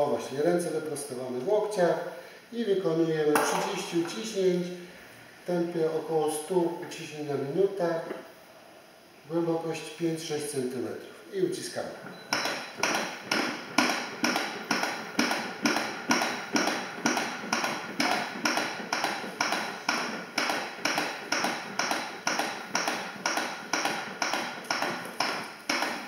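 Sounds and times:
manikin chest compression clicks: 0:12.2 - 0:26.0.

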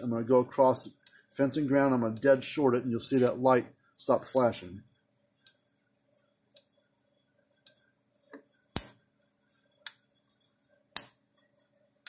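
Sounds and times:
electric fence energizer snaps: 0:08.8 - 0:09.0.

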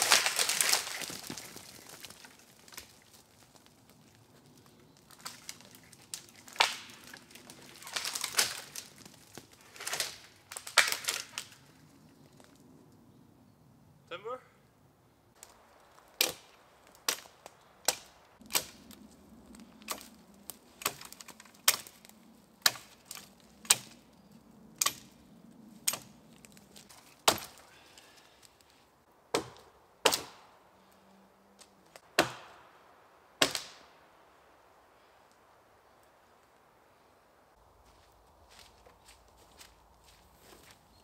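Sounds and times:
dry wood cracking: 0:00.0 - 0:13.0, 0:15.4 - 0:32.6, 0:37.7 - 0:41.0.

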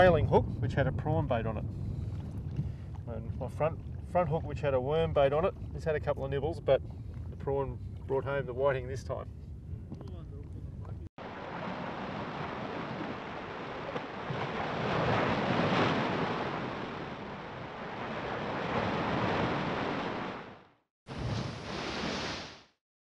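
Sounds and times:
rushing water: 0:11.2 - 0:20.6.

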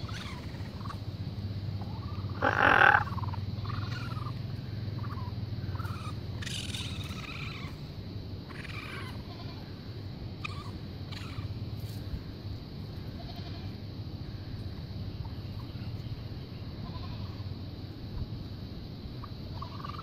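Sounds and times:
loud harsh raccoon cry: 0:00.0 - 0:01.0, 0:01.9 - 0:04.4, 0:05.0 - 0:07.8, 0:08.5 - 0:09.6, 0:10.4 - 0:11.5
baby raccoons chirping cries: 0:00.0 - 0:01.1, 0:01.8 - 0:07.9, 0:08.5 - 0:09.6, 0:10.4 - 0:11.6, 0:19.2 - 0:20.0
low steady hum: 0:00.0 - 0:20.0.

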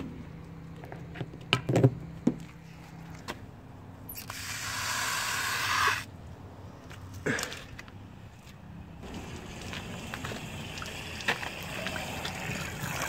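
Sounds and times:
water rushing from garden hose: 0:04.1 - 0:06.1, 0:09.0 - 0:13.0.

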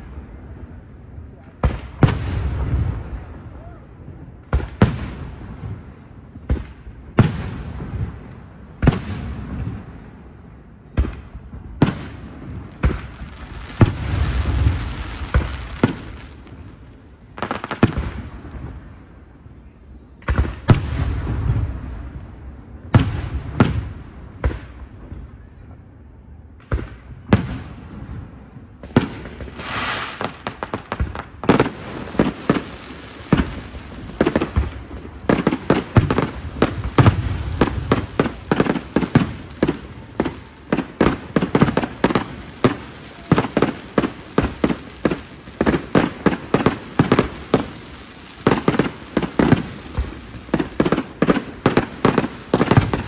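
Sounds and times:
fireworks crackling: 0:11.0 - 0:19.1, 0:26.6 - 0:53.0
firework shells bursting with bangs: 0:11.8 - 0:19.0, 0:28.9 - 0:53.0.

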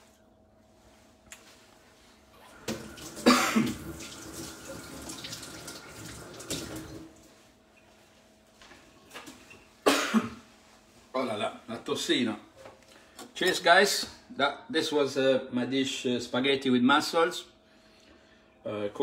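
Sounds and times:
water running from a tap: 0:02.5 - 0:07.2.

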